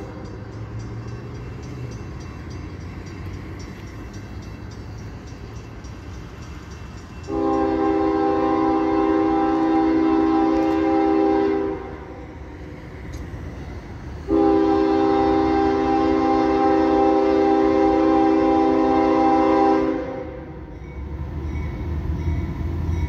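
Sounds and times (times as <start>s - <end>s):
locomotive low rumble: 0.0s - 19.4s
locomotive air horn blast: 7.3s - 12.2s, 14.2s - 20.6s.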